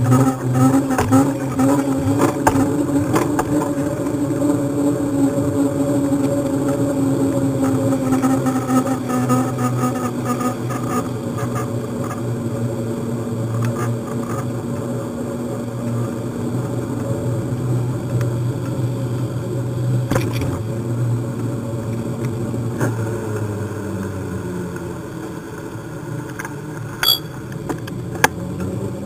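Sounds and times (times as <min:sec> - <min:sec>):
sharp click: 0:27.0 - 0:27.3.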